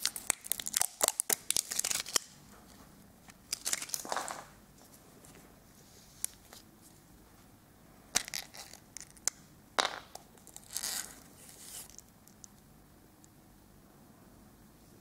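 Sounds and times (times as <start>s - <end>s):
crinkly plastic rustle: 0.0s - 2.8s, 3.5s - 4.5s.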